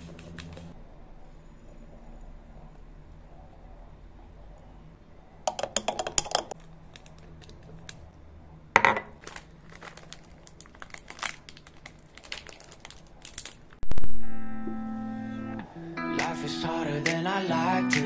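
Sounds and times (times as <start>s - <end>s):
sachet crinkling and tearing: 6.6s - 8.0s, 9.2s - 14.0s.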